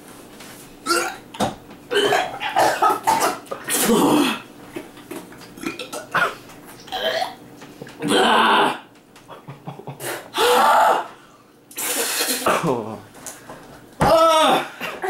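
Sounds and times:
person gagging and retching: 0.8s - 1.3s, 1.9s - 4.5s, 5.1s - 7.4s, 8.0s - 8.9s.

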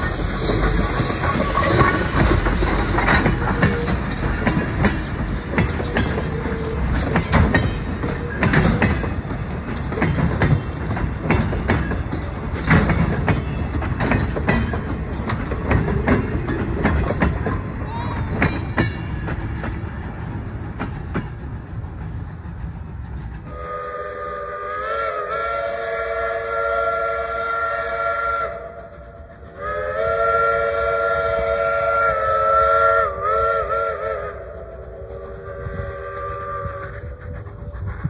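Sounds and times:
train wheels clicking: 0.0s - 25.3s
train rolling with rumble: 0.0s - 38.0s.

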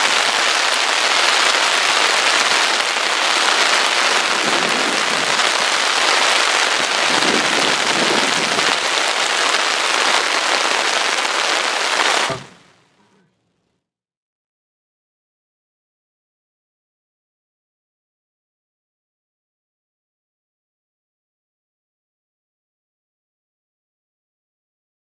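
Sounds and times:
heavy rain pouring: 0.0s - 12.8s.

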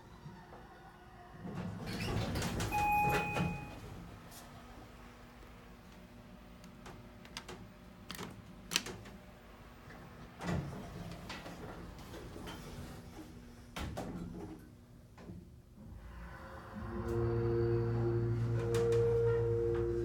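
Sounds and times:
elevator doors sliding shut: 1.7s - 3.8s, 16.1s - 20.0s.

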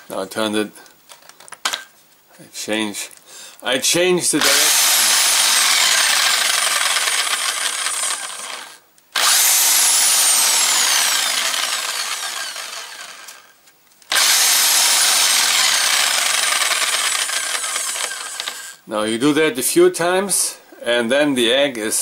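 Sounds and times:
electric drill motor running: 4.4s - 13.5s, 14.1s - 18.8s.

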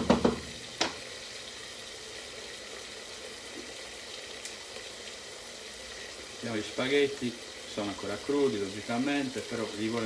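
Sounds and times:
sauce sizzling in a pan: 0.0s - 10.0s
water boiling in a pot: 0.0s - 10.0s.

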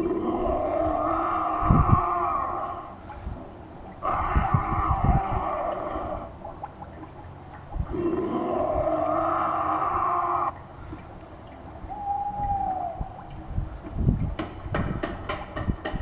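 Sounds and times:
wavering spooky moaning tones: 0.0s - 3.0s, 4.0s - 6.4s, 7.9s - 10.5s.

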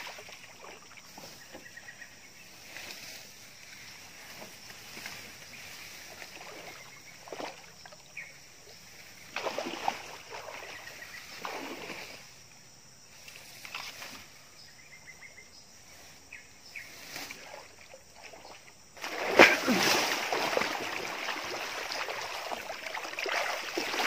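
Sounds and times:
water splashing and sloshing: 0.0s - 1.9s, 2.6s - 12.5s, 17.0s - 24.0s.

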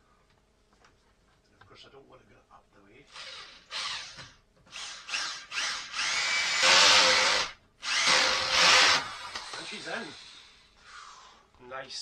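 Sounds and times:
electric drill driving screw: 3.1s - 10.5s.

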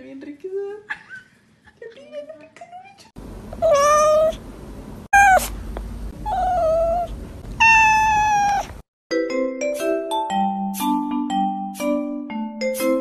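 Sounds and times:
cat meowing: 3.6s - 4.4s, 5.2s - 5.5s, 6.2s - 8.8s.

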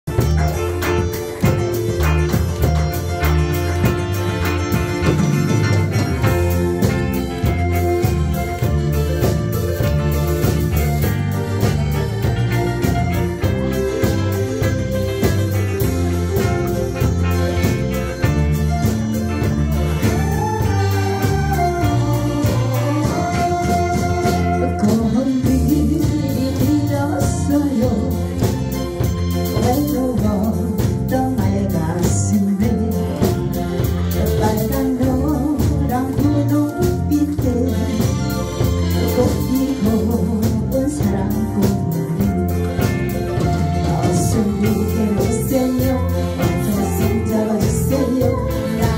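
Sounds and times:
live band playing: 0.0s - 48.9s
woman singing through microphone: 20.0s - 28.8s, 29.4s - 48.9s.

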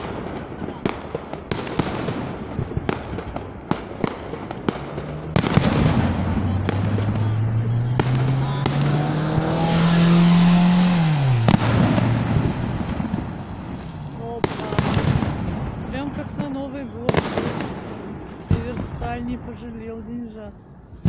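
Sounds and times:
fireworks bangs and crackles: 0.0s - 21.0s
car driving past: 4.4s - 14.2s.

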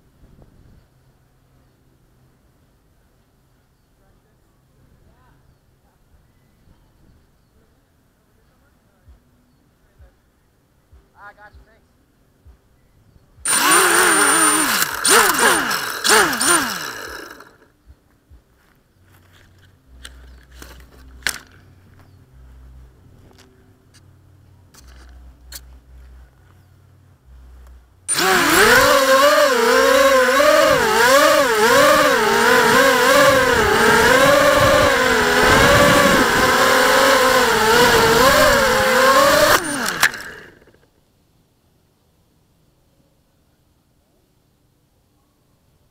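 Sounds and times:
drone propellers whining: 13.5s - 17.7s, 28.1s - 40.8s
small motor revving: 13.5s - 17.7s, 28.1s - 40.8s
high steady whine: 19.6s - 40.9s.

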